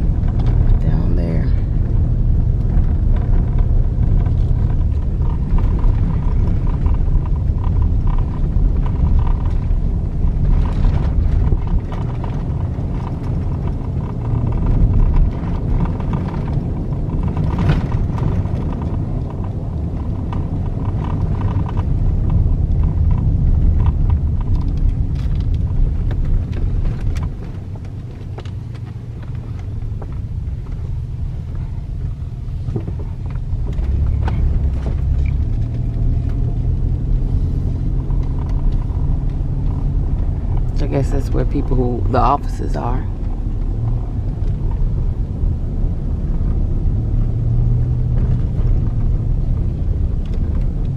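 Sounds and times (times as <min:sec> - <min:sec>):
car engine and tyres rumbling: 0:00.0 - 0:50.9.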